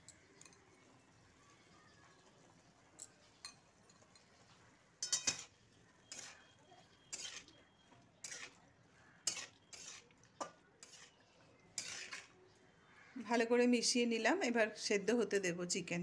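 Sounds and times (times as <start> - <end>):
spatula scraping metal wok: 5.0 - 7.6, 8.2 - 12.4.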